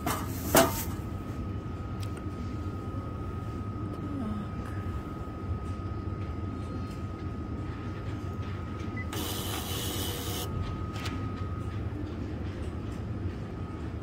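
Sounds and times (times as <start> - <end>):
low hum with high tone: 0.0 - 14.0
label printer whirring: 9.0 - 11.2.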